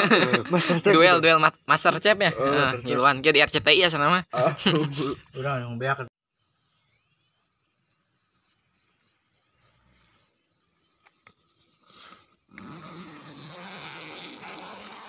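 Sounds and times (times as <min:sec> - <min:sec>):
crickets chirping: 0:06.6 - 0:15.0
tent fabric rustling: 0:11.8 - 0:15.0.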